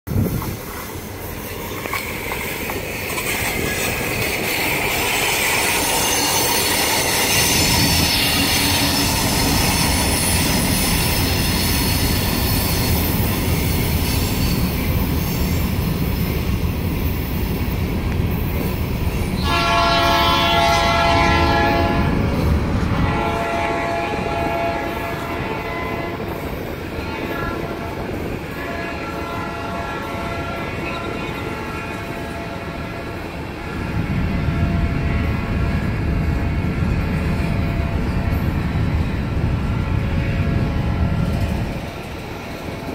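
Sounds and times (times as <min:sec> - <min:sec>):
freight train rumble and wheel clatter: 0:00.0 - 0:42.9
locomotive air horn blast: 0:19.4 - 0:22.2, 0:22.9 - 0:26.2, 0:27.0 - 0:30.8.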